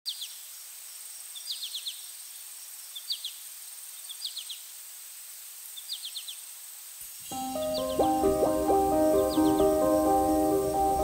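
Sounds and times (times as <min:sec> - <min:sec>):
soft hiss: 0:00.1 - 0:11.0
bird call of falling notes: 0:07.3 - 0:11.0.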